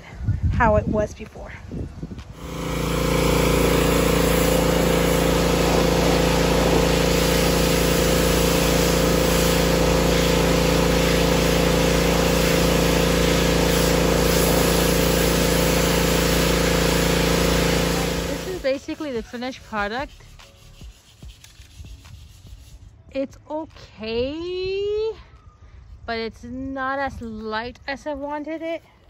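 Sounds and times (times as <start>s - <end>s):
pressure washer motor hum: 2.3s - 19.2s
water jet hissing: 2.4s - 20.9s.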